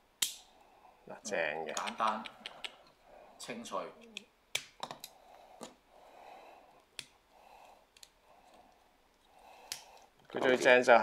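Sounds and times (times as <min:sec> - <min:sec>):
soft breathing: 0:00.4 - 0:01.1, 0:02.2 - 0:03.7, 0:05.0 - 0:10.3.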